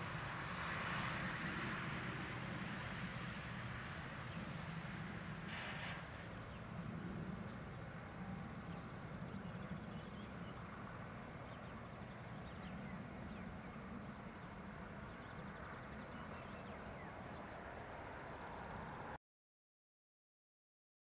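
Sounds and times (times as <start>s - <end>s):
faint outdoor rumble: 0.0s - 19.2s.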